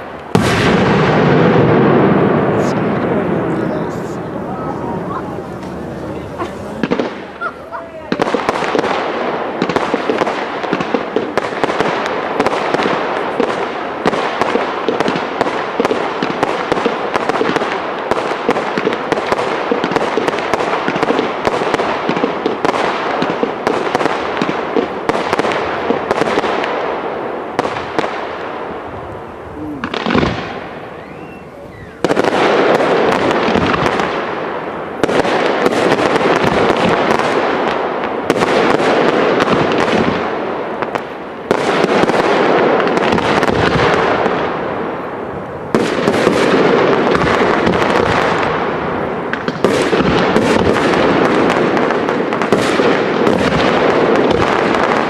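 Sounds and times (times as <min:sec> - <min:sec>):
firework boom: 0:00.0 - 0:14.2, 0:27.6 - 0:37.1
fireworks crackling: 0:00.0 - 0:55.0.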